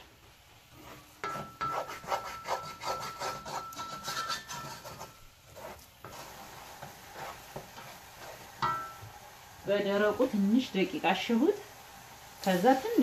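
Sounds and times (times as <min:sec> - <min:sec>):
wooden spoon scraping a pot: 0:00.7 - 0:09.1.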